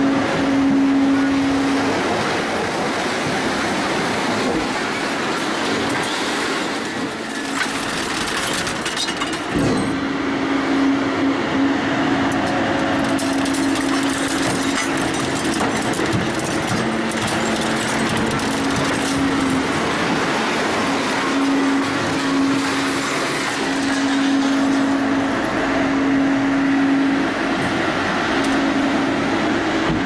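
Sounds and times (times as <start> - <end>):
low machine hum: 0.0 - 6.0, 6.8 - 30.0
metal crackles and creaks: 5.0 - 10.1, 12.2 - 25.3
scrap shear crushing metal: 5.4 - 10.1, 12.2 - 25.2.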